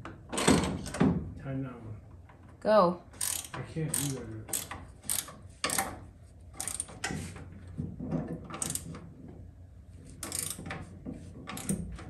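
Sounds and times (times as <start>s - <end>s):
ratchet wrench clicking: 3.2s - 5.9s, 6.6s - 7.0s, 8.6s - 8.8s, 10.2s - 10.6s.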